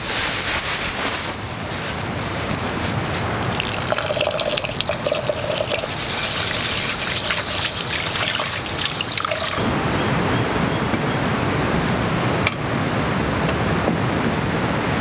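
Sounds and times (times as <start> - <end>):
hands swishing rice in water: 3.4 - 9.6
water trickling into pot: 3.4 - 9.6.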